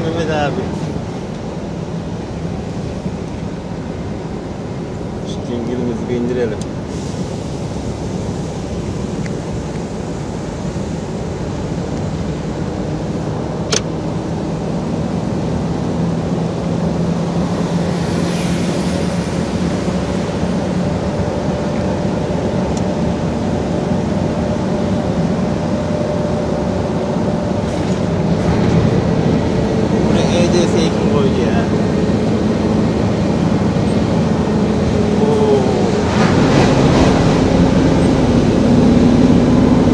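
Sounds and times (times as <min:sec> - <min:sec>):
diesel truck engine droning: 0:00.0 - 0:39.9.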